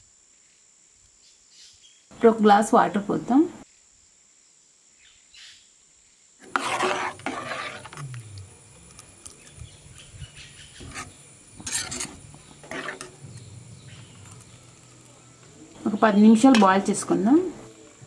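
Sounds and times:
metal spoon scraping a steel pan: 6.4 - 8.1, 10.8 - 15.0.

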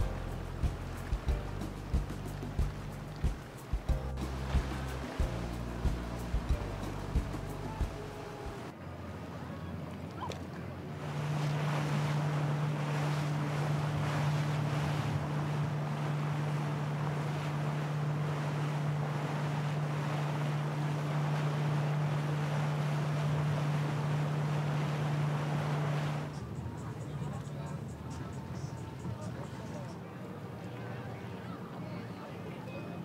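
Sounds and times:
wind buffeting microphone: 0.0 - 8.7, 10.9 - 27.3
boat engine droning: 0.0 - 33.0
water noise: 0.0 - 33.0.

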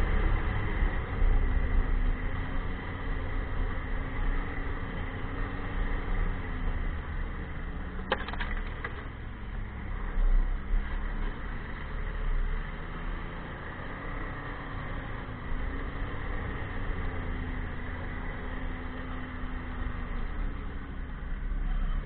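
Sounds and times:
rattle of sharp clicks: 8.0 - 9.1.

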